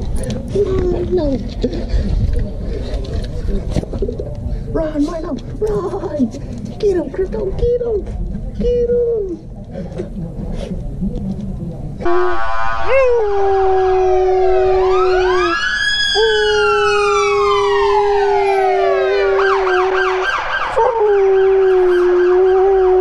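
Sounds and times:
dog howling: 12.0s - 23.0s
siren wailing and yelping: 12.0s - 23.0s.

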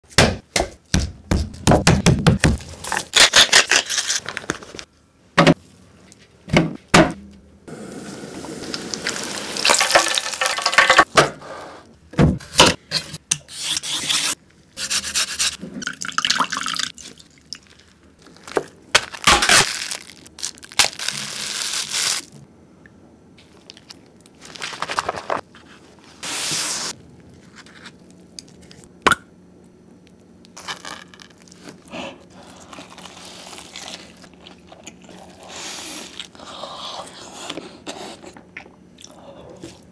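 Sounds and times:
knocks of food preparation: 0.1s - 2.7s.

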